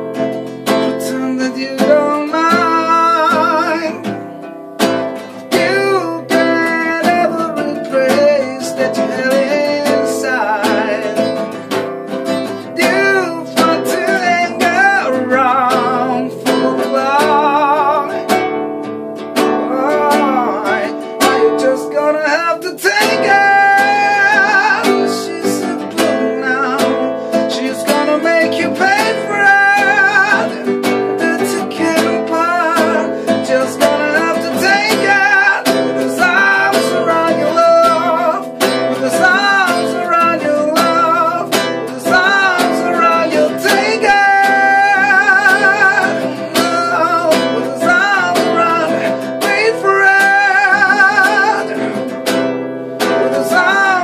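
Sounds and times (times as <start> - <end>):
acoustic guitar strumming: 0.0 - 54.0
man singing: 0.0 - 54.0.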